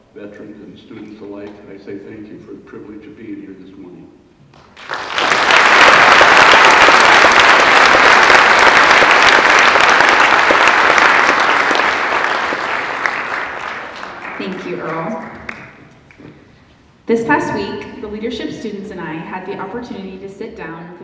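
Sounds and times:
audience applauding: 4.5s - 16.4s.

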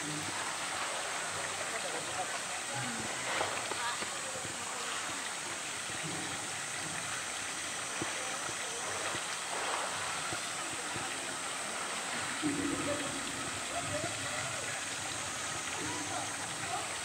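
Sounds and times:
running water rushing: 0.0s - 17.0s.

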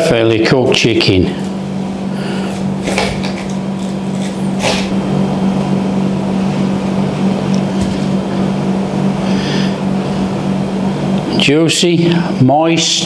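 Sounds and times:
steady low hum: 0.0s - 13.0s
knife crunching through crisp crust: 2.4s - 5.0s.

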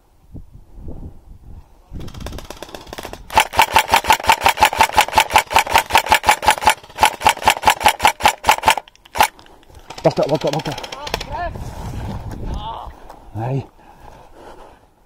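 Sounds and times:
airsoft rifle firing full auto: 2.1s - 11.3s.

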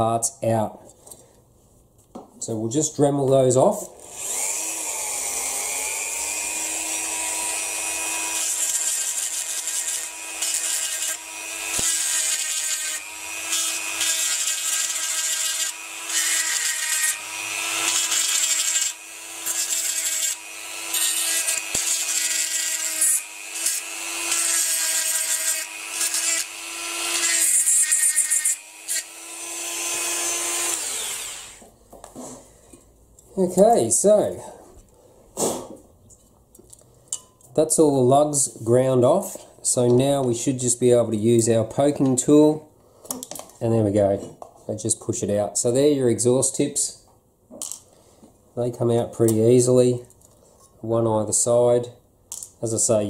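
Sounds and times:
bit grinding metal: 4.0s - 31.6s
rotary tool whining: 4.0s - 31.7s.

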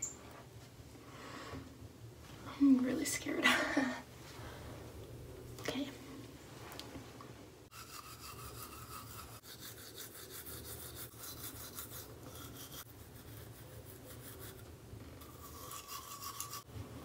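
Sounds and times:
toothbrush scrubbing teeth: 7.7s - 16.7s.

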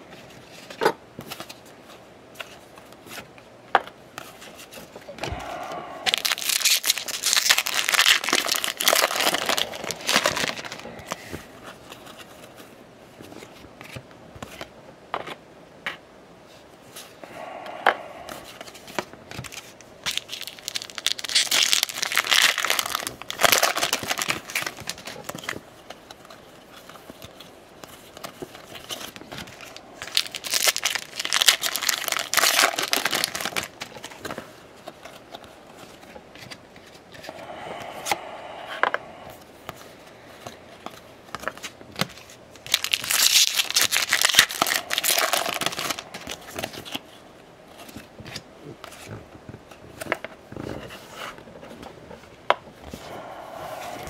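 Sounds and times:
wrappers crinkling and tearing: 6.0s - 11.2s, 18.6s - 36.6s, 41.3s - 49.2s.

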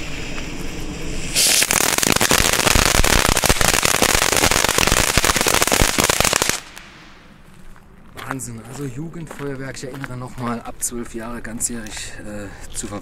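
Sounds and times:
firework fountain crackling: 0.0s - 7.2s
firework hissing: 0.0s - 7.2s.

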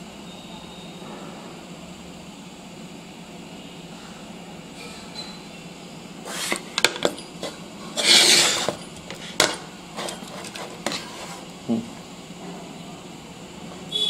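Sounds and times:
tools clinking and knocking: 6.7s - 11.0s
brief scraping: 8.0s - 8.8s.

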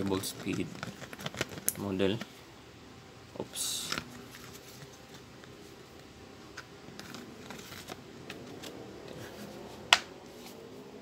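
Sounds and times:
plastic housing rubbing: 0.0s - 2.3s, 6.5s - 9.9s.

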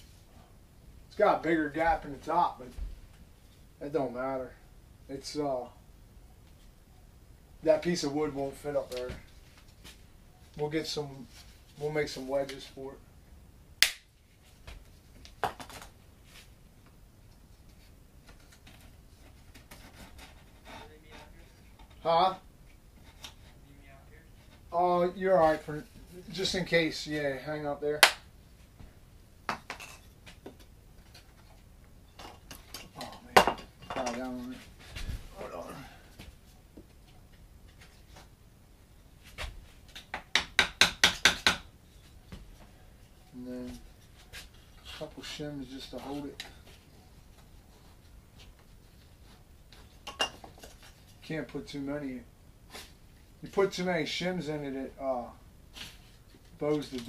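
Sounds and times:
taps and rustles of wood handling: 13.8s - 22.1s, 28.0s - 35.3s, 39.2s - 42.8s, 43.6s - 51.3s
hammer tapping wooden shim: 40.0s - 41.7s.

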